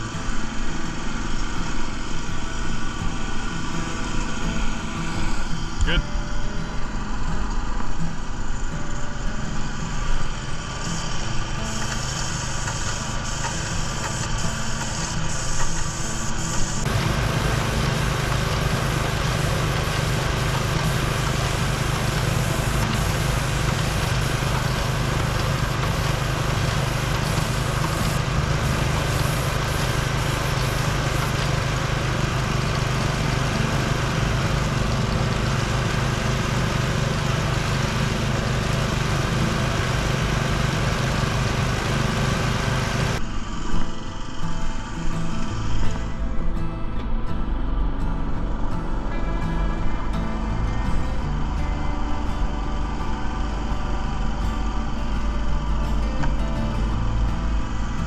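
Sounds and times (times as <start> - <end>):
small gas engine running: 0.0 - 58.0
paint spray hiss: 7.8 - 43.2.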